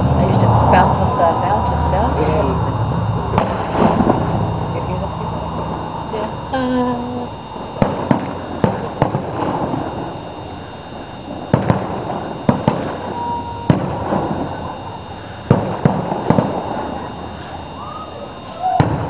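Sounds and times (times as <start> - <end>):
distant firework bangs: 3.3 - 4.5, 7.5 - 10.6, 11.3 - 19.0.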